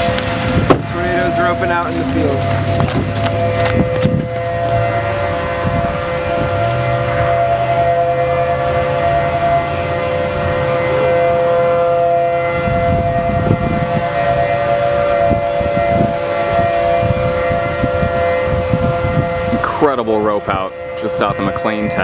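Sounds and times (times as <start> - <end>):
low rumble: 0.0 - 14.1
two-pitch warning siren: 0.0 - 22.0.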